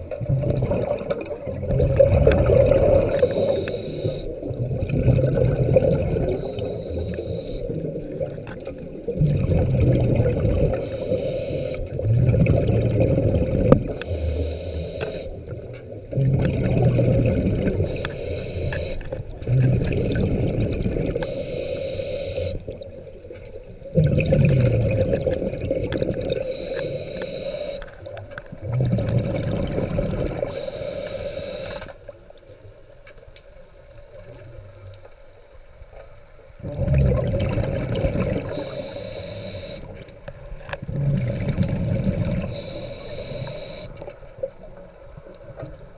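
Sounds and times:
exhaled bubbles rushing: 0.0s - 3.6s, 4.2s - 6.8s, 7.7s - 11.0s, 11.8s - 14.0s, 16.1s - 18.0s, 19.1s - 21.3s, 23.8s - 26.6s, 28.0s - 30.6s, 36.6s - 38.8s, 40.8s - 42.6s
regulator hiss on inhale: 3.1s - 4.4s, 6.3s - 7.8s, 10.7s - 11.9s, 14.0s - 15.4s, 17.8s - 19.0s, 21.2s - 22.6s, 26.4s - 27.9s, 30.5s - 32.0s, 38.5s - 39.9s, 42.4s - 44.0s.

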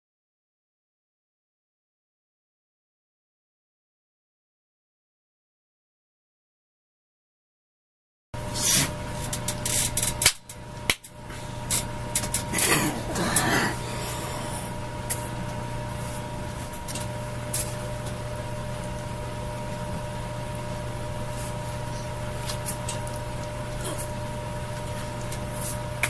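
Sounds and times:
electrical hum: 8.4s - 26.0s.

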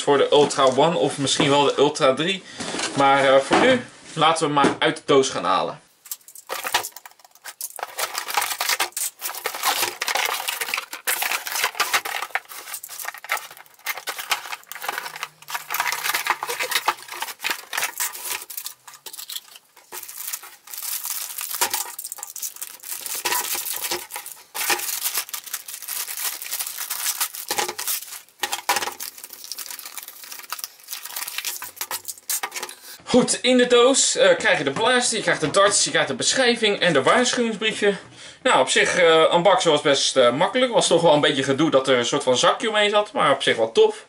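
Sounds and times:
plastic bags crinkling and tearing: 6.0s - 33.0s
cardboard box opened: 7.8s - 21.6s
parts clicking and knocking on table: 27.1s - 29.2s.

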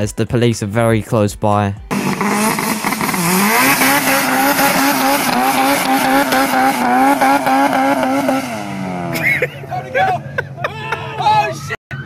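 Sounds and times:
car engine at high revs: 1.9s - 9.4s.

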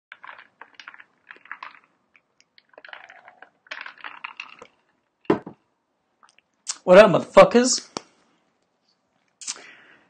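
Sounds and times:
liquid sloshing: 0.1s - 5.6s.

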